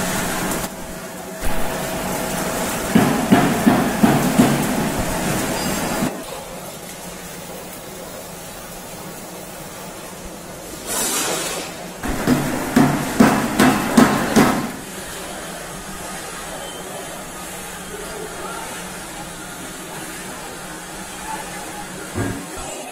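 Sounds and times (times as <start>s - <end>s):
machinery humming: 0.0s - 10.8s, 11.8s - 22.9s
loud knocks: 2.9s - 5.2s, 12.0s - 14.8s.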